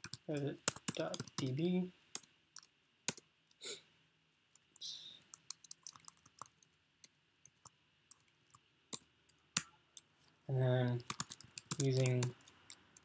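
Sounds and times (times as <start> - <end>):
keyboard keystrokes and clicks: 0.0 - 1.5, 5.3 - 6.7, 11.0 - 13.0.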